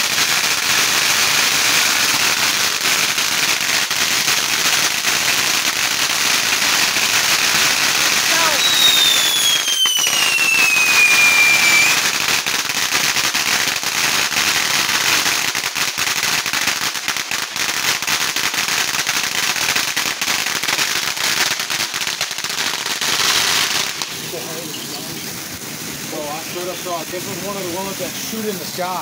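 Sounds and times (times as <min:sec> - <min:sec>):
firework fountain hissing and crackling: 0:00.0 - 0:29.0
falling whistling tone: 0:08.4 - 0:12.0.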